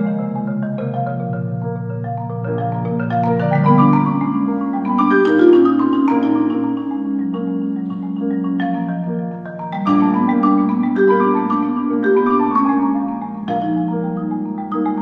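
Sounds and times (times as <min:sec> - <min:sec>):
marimba played with mallets: 0:00.0 - 0:15.0
piano accompaniment: 0:00.0 - 0:15.0.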